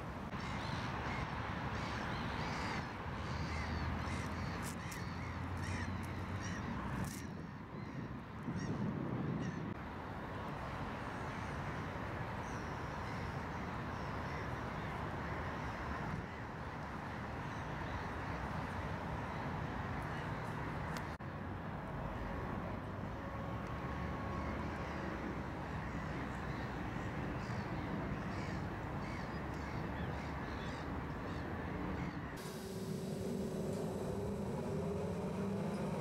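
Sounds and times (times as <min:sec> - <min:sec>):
low outdoor rumble: 0:32.4 - 0:36.0
vehicle motor: 0:32.4 - 0:36.0.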